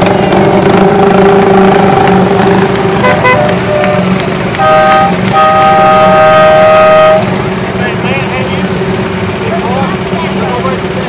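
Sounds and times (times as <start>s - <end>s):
horns tooting: 0.0s - 8.7s
small engines humming: 0.0s - 11.0s.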